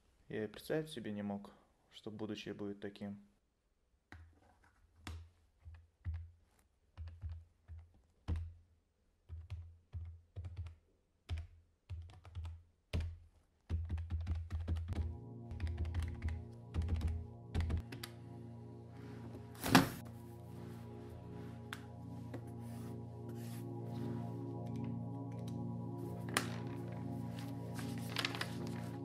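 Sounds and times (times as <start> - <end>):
calculator keys tapping: 5.6 - 8.6, 9.2 - 18.1
music with held tones: 14.7 - 29.0.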